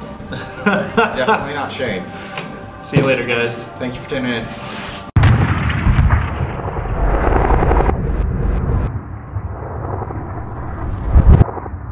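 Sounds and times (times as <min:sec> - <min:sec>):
deep explosion boom: 0:05.2 - 0:11.9
low rumble: 0:05.2 - 0:11.9
sharp cracks: 0:05.2 - 0:11.9.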